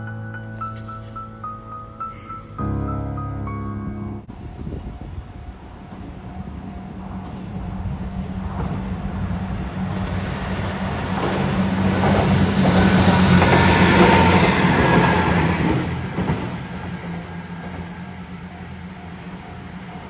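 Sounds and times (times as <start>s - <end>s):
diesel train passing: 0.0s - 20.0s
wheels clicking over rail joints: 10.7s - 20.0s.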